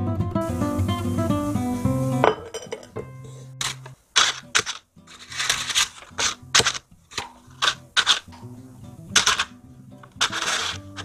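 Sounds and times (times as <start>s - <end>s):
soft background music: 0.0s - 11.0s
paper muffin liners crinkling: 3.2s - 8.5s, 9.1s - 11.0s.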